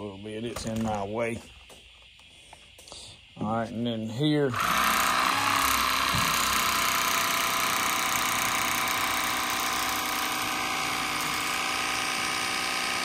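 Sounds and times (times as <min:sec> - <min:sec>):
electric fillet knife buzzing: 0:04.5 - 0:13.0.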